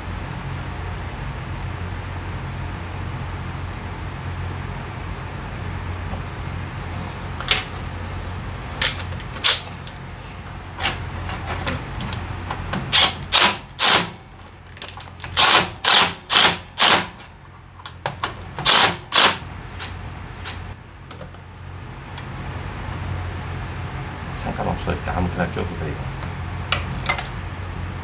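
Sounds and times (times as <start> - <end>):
steady low hum: 0.0 - 28.0
impact driver hammering: 12.9 - 14.2, 15.4 - 17.2, 18.6 - 19.4.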